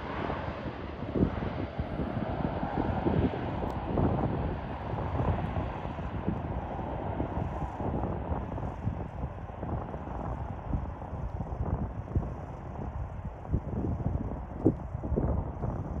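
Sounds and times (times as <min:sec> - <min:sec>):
distant jet noise: 0:00.0 - 0:11.3
wind buffeting microphone: 0:00.0 - 0:16.0.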